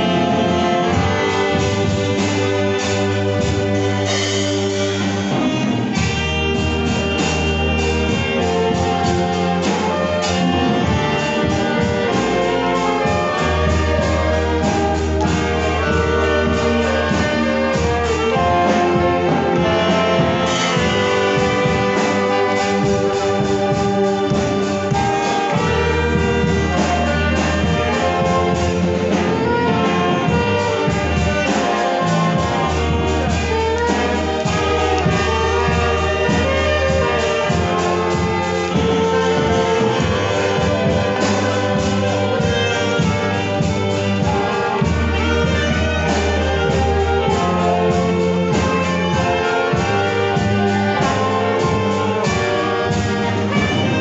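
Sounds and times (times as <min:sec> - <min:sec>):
drum kit: 0:00.0 - 0:54.0
keyboard with low bass notes: 0:00.0 - 0:54.0
saxophones and violins melody: 0:00.0 - 0:54.0.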